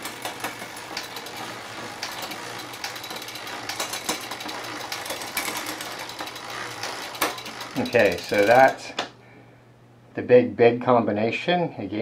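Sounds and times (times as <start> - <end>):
bicycle chain running over cogs: 0.0 - 8.9
derailleur shifting clicks: 0.0 - 9.1.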